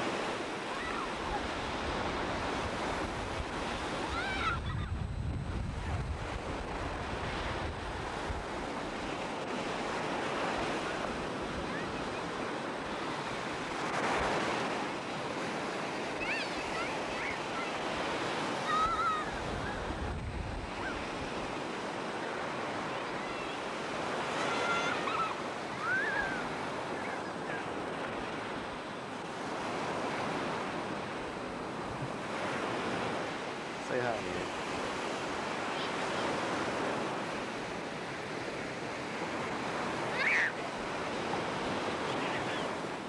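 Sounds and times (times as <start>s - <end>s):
surf breaking on beach: 0.0s - 43.0s
wind buffeting microphone: 1.0s - 33.4s.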